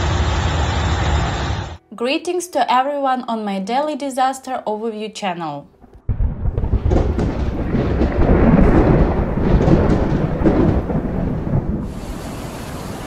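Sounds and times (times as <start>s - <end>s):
deep rolling thunder: 5.8s - 13.0s.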